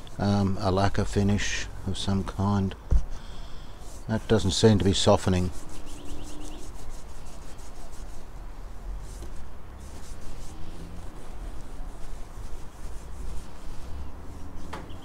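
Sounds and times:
cloth rubbing on wood: 3.8 - 15.0.

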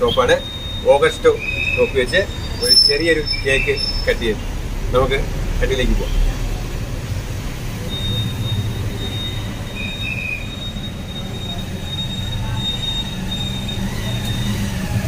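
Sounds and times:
short squeak: 7.8 - 14.9.

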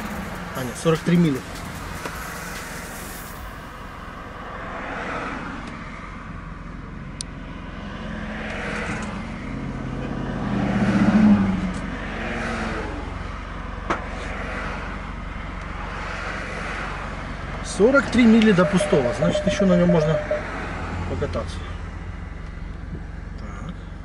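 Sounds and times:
car engine running: 0.0 - 7.9.

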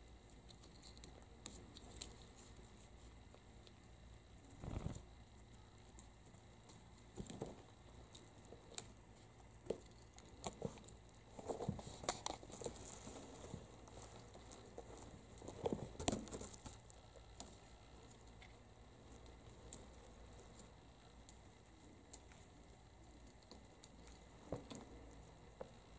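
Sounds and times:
kitten claws scratching: 4.6 - 5.0.

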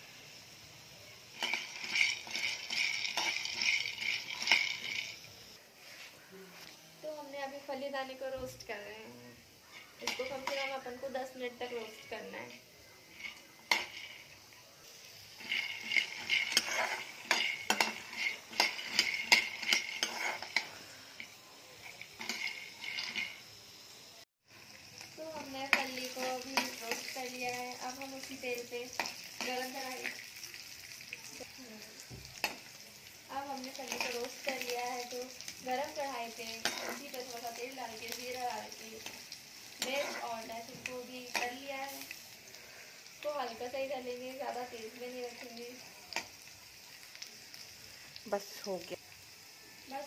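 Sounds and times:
peanuts rattling in a pan: 1.2 - 5.5, 9.7 - 23.8, 24.6 - 50.0
peanuts rattling: 1.4 - 5.2
spatula scraping a metal pan: 1.4 - 5.2, 9.7 - 10.9, 11.6 - 14.4, 15.3 - 20.8, 21.8 - 23.4, 35.9 - 38.3, 39.0 - 42.0.

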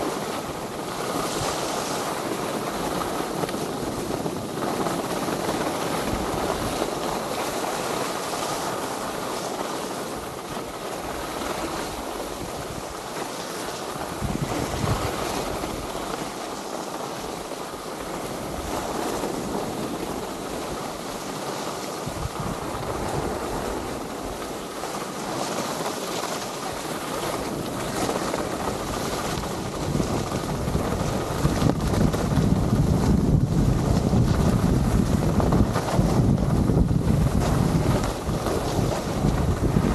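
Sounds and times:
skis scraping over snow: 0.0 - 39.9
wind buffeting microphone: 0.0 - 39.9.

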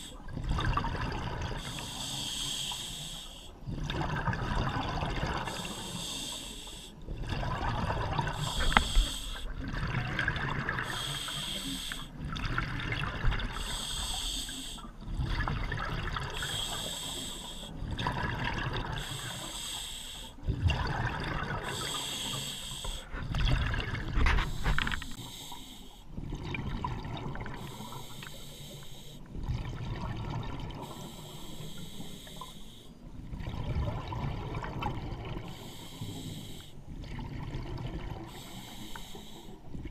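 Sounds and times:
diver breathing through regulator: 1.6 - 3.6, 5.4 - 7.0, 8.2 - 9.6, 10.8 - 12.2, 13.6 - 15.0, 16.4 - 17.8, 18.9 - 20.4, 21.6 - 23.5, 24.1 - 26.1, 27.6 - 29.2, 30.8 - 33.0, 35.4 - 36.8, 38.3 - 39.7
bubbling exhales: 7.1 - 19.5.

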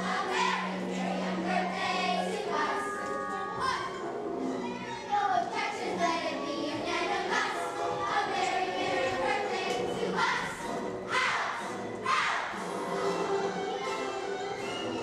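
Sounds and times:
children singing together: 0.0 - 3.6, 5.1 - 13.3.

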